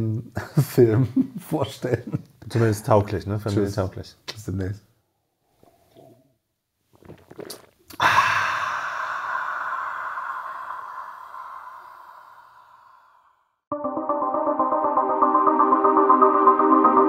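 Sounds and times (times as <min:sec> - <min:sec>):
faint sipping: 0:05.5 - 0:06.3, 0:06.9 - 0:13.0
men sighing aaah together: 0:07.9 - 0:13.4.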